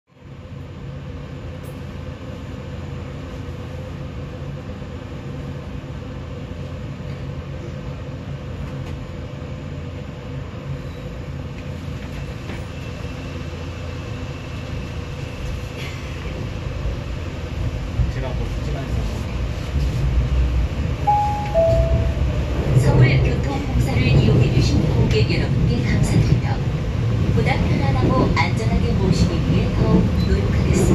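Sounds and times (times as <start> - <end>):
subway train rumble: 0.1 - 30.9
faint high-pitched tone: 21.1 - 22.3.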